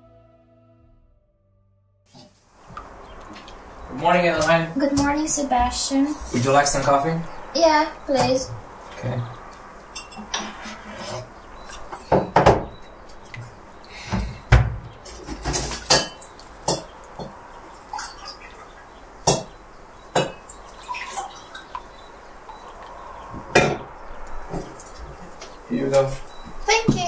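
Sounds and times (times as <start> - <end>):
mugs and kitchenware clinking: 10.0 - 12.8, 15.2 - 17.4.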